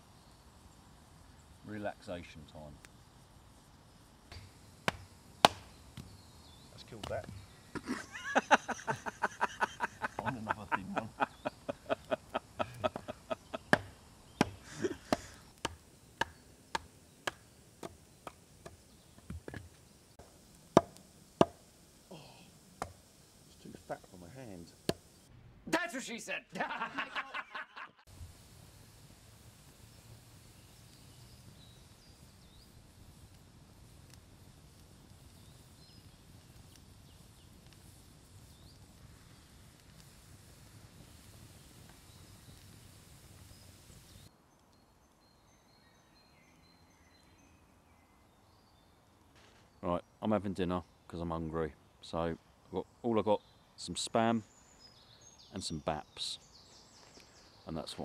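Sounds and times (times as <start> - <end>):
baton knocking on knife splitting wood: 4.3 - 5.7, 20.8 - 21.6.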